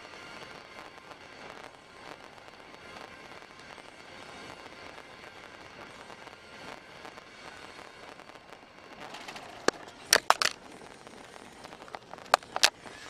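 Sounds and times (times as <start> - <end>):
camera handling clicks: 10.1 - 10.6.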